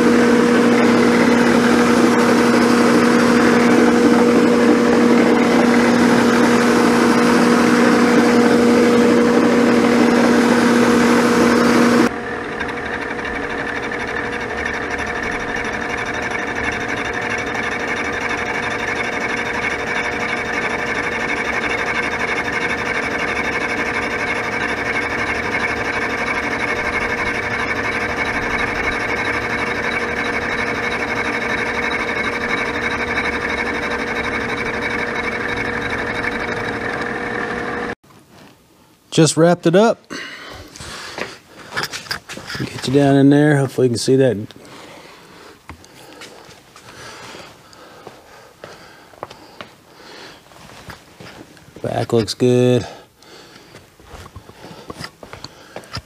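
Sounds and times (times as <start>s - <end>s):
milling machine cutting metal: 0.0s - 38.0s, 41.8s - 44.6s.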